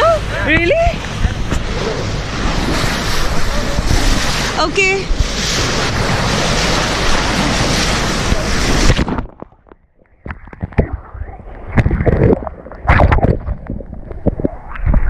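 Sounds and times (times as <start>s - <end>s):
sea water rushing: 0.0s - 9.4s
wind blasting microphone: 0.0s - 15.0s
water splashing: 0.6s - 15.0s.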